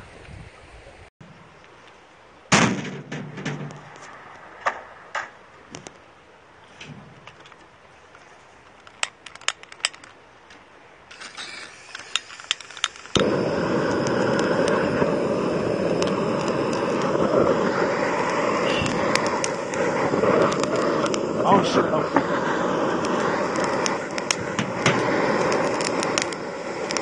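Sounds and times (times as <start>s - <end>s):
sharp clicks: 11.1s - 17.5s, 18.2s - 21.3s, 23.0s - 27.0s
loud steady rushing noise: 12.2s - 27.0s.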